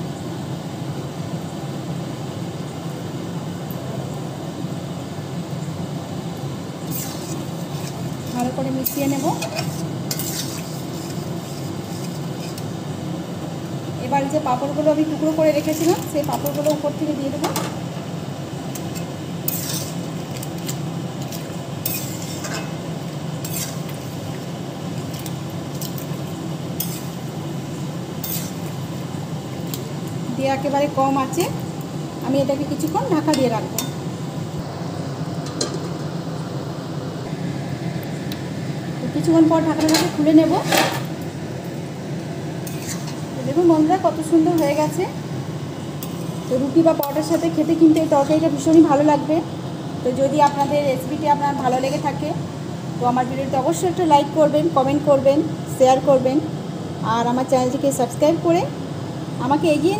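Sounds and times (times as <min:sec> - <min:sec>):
kitchen background rushing drone: 0:00.0 - 0:59.9
steady low hum: 0:00.0 - 0:59.9
metal spatula scraping a pan: 0:06.8 - 0:12.7, 0:18.8 - 0:22.8, 0:23.4 - 0:24.3, 0:26.8 - 0:27.2, 0:28.2 - 0:28.7, 0:42.6 - 0:43.3.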